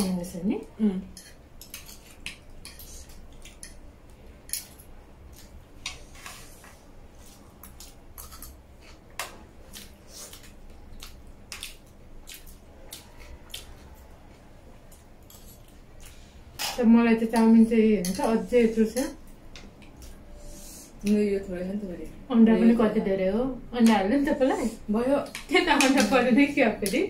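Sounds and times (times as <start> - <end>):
chewing: 9.6 - 16.2.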